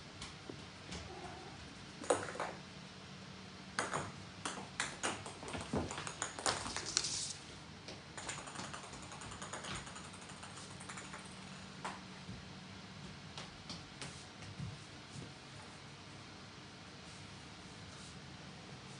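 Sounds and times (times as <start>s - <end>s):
ball bouncing on wooden floor: 2.0s - 2.6s, 3.8s - 7.0s.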